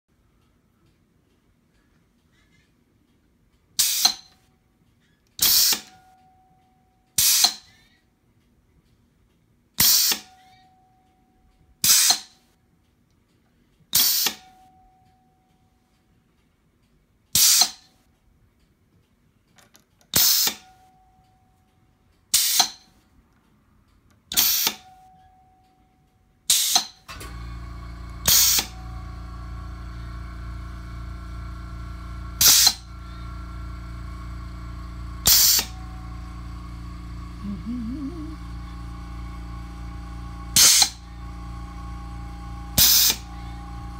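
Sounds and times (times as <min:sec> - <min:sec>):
air exhaust blasts: 0:27.1 - 0:43.9
steady machine hum: 0:27.1 - 0:43.9.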